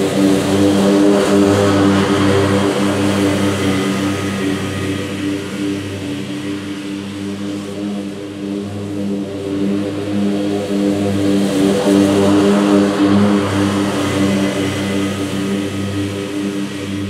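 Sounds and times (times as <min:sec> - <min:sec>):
mower engine droning: 0:00.0 - 0:08.0.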